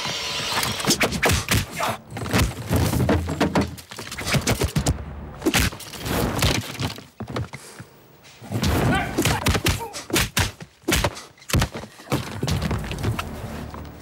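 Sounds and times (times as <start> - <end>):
punches: 8.6 - 12.6.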